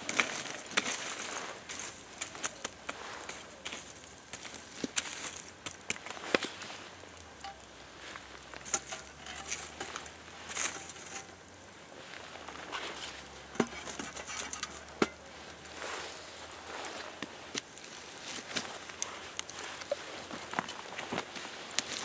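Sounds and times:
campfire crackles: 0.0 - 22.0
wood knocking and scraping on logs: 7.4 - 7.7, 8.4 - 11.5, 12.5 - 15.3.

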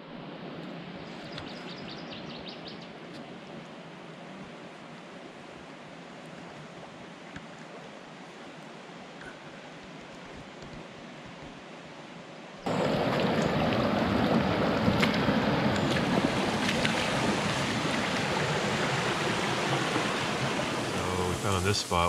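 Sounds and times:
heavy rain pouring: 12.7 - 22.0.

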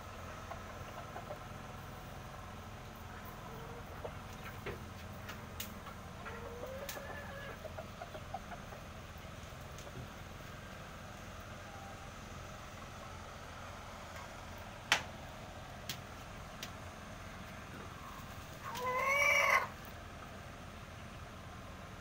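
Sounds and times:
rooster call: 18.6 - 19.8.

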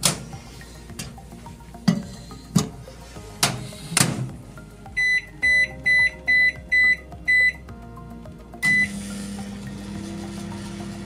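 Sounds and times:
short keypad beeps: 5.0 - 7.6, 8.6 - 9.0
microwave oven humming: 8.8 - 11.0.

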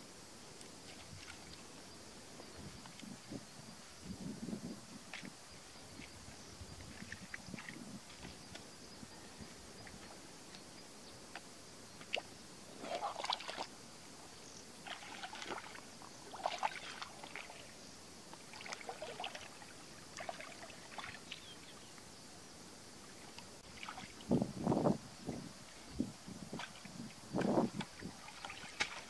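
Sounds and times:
hands splashing in muddy water: 12.8 - 13.7, 14.8 - 17.6, 18.4 - 21.4, 26.5 - 29.0.

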